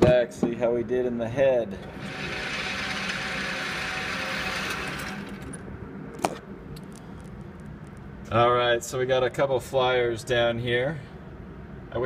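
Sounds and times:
motorised target carrier humming: 0:01.8 - 0:06.7.

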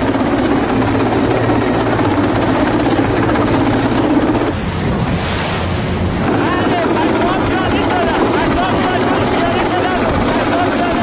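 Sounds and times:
helicopter rotor and engine drone: 0:00.0 - 0:11.0.

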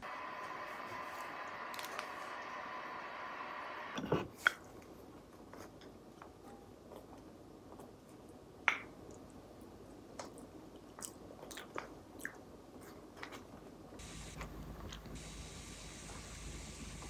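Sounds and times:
steady hum: 0:00.0 - 0:04.0, 0:14.0 - 0:17.0.

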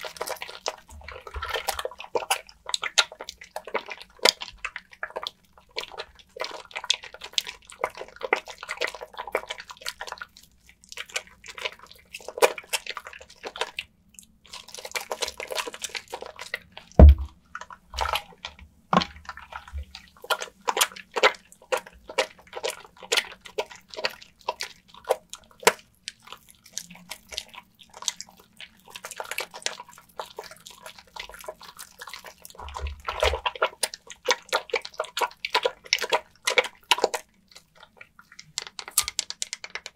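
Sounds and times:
soap lathering in water: 0:00.0 - 0:39.9
loud low knock: 0:17.0 - 0:17.3.

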